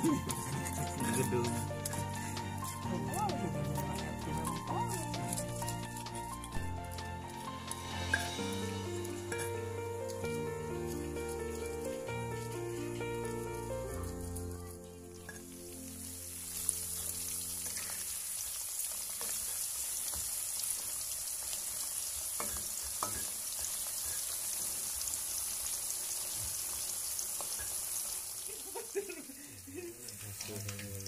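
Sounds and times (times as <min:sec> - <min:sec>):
food deep-frying in hot oil: 0:00.0 - 0:31.0
spatula scraping a wok: 0:22.0 - 0:24.9.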